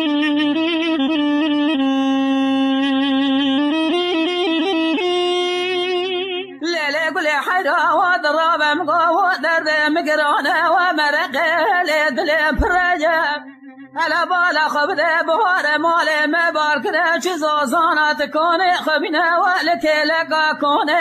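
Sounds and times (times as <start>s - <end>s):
ornamented wordless singing: 6.6s - 21.0s.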